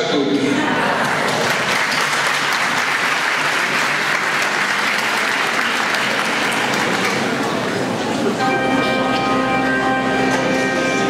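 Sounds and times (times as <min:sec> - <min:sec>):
crowd applauding: 0:00.6 - 0:08.3.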